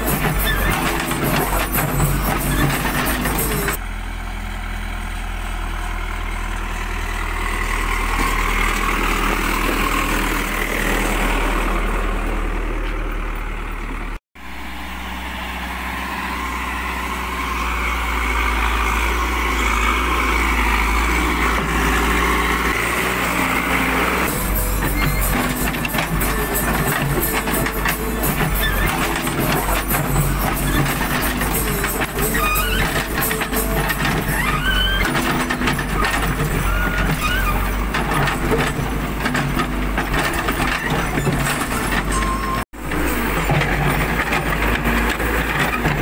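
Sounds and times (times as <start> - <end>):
diesel engine droning: 0.0 - 46.0.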